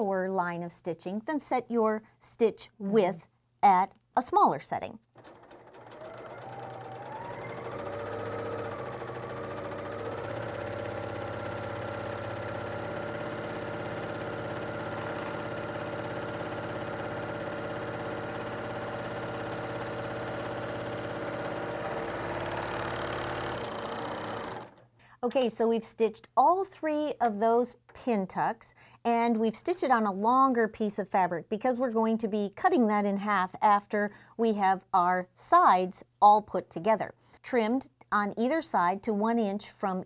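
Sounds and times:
serger sewing machine whine: 0:05.2 - 0:24.8.

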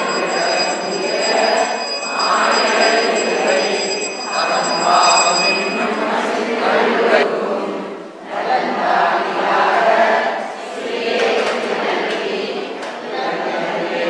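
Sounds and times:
temple bell ringing: 0:00.0 - 0:07.2
crowd hubbub: 0:00.0 - 0:08.0.

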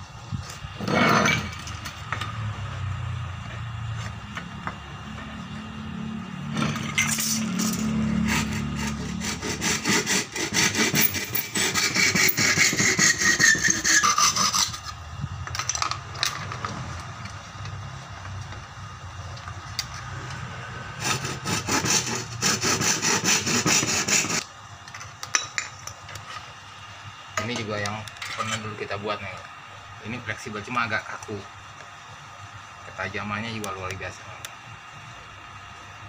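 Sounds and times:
hand saw cutting wood: 0:07.2 - 0:15.0, 0:21.0 - 0:24.5.

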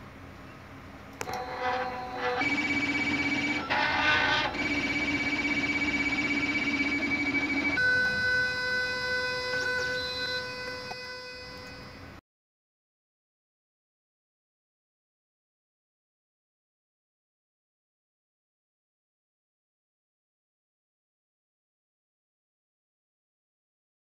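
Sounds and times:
steady electronic tones: 0:01.2 - 0:12.2.

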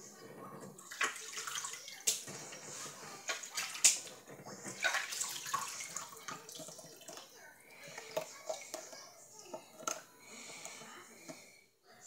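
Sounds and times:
water sloshing and splashing: 0:00.3 - 0:08.8.

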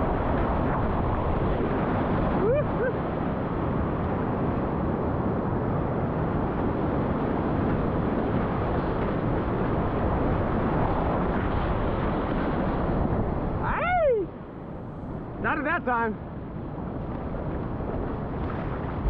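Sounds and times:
whitewater rushing: 0:09.8 - 0:16.1.

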